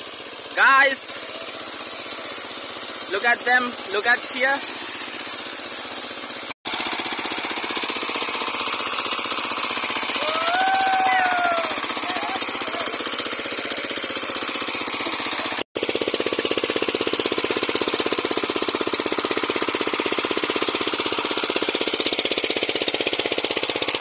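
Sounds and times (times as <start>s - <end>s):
small engine water pump chugging: 0.0s - 24.0s.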